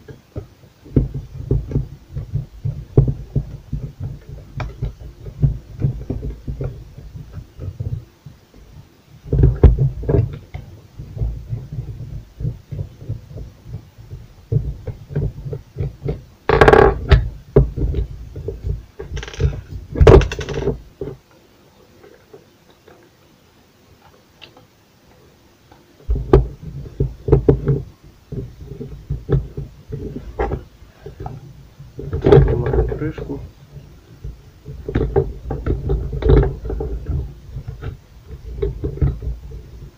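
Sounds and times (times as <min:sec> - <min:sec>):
clicks and knocks of plastic housing: 0:14.5 - 0:21.2
loud clatters: 0:19.0 - 0:20.9.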